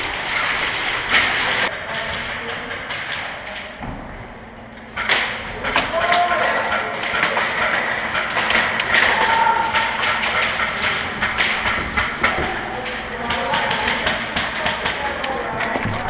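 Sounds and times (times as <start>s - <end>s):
pellets striking plywood walls: 5.0s - 16.0s.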